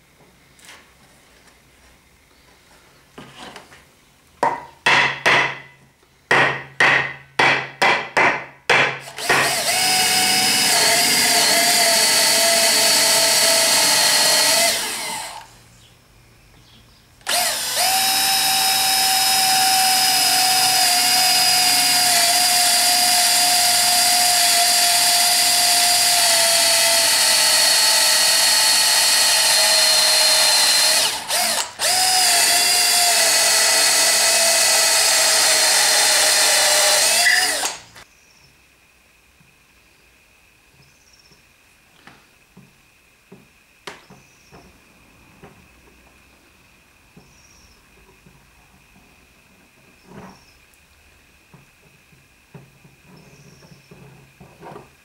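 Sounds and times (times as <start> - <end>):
cordless drill boring into wood: 9.0 - 15.5, 17.2 - 37.9.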